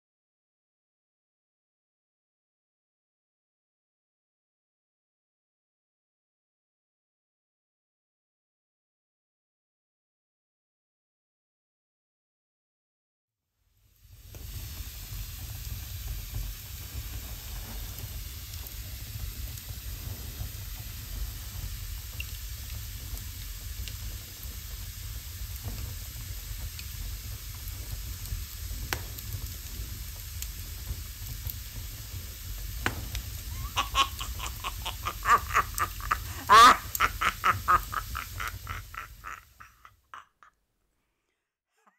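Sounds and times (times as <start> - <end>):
fire roaring and crackling: 13.9 - 39.6.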